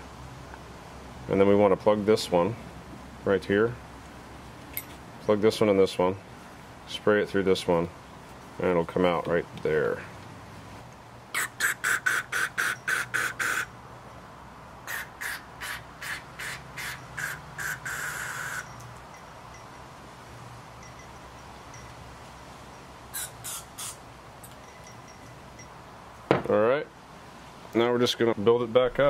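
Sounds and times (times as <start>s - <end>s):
aerosol spray bursts: 11.4s - 13.7s, 14.9s - 18.6s, 23.2s - 24.0s.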